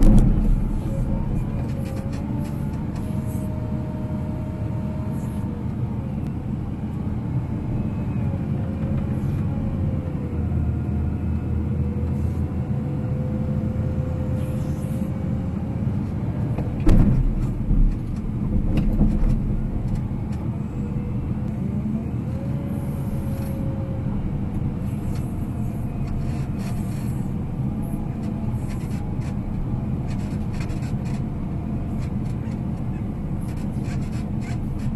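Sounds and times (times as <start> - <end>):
loud knocks: 0.0 - 1.6, 16.8 - 19.4
diesel engine running: 0.0 - 34.9.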